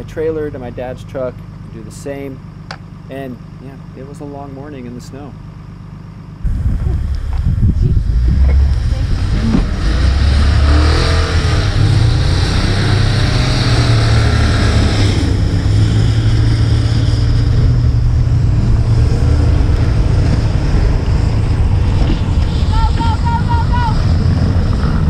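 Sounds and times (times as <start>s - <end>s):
pickup truck engine revving: 6.4s - 25.0s
wheels spinning in snow: 6.4s - 25.0s.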